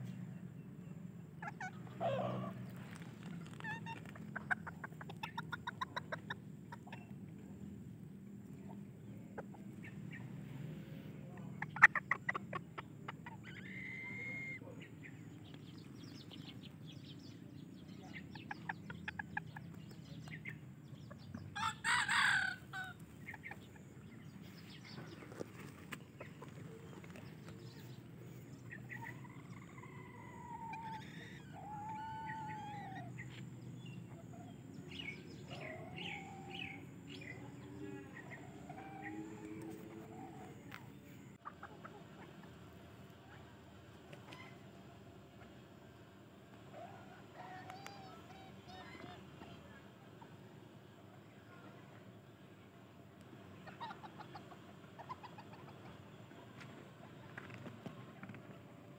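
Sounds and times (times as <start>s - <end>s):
chickens clucking: 0.0s - 58.9s
rooster crowing: 21.6s - 23.0s.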